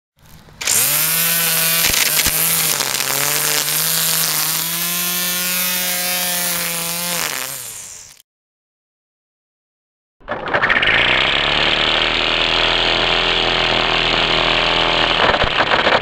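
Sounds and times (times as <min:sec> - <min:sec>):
nylon line thrashing grass: 0:00.2 - 0:07.8
string trimmer motor whine: 0:00.2 - 0:08.2, 0:10.6 - 0:16.0.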